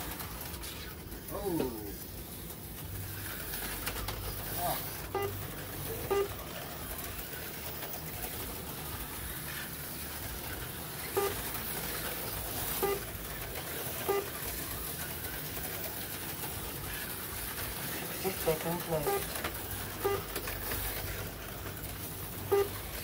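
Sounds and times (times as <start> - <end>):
slot cars whirring: 0.0 - 23.0
short high tones: 5.1 - 5.4, 6.0 - 6.4, 22.5 - 22.8.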